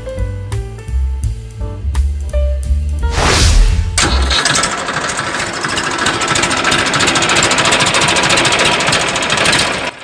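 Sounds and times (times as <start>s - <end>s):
tractor engine knocking: 4.0s - 10.0s.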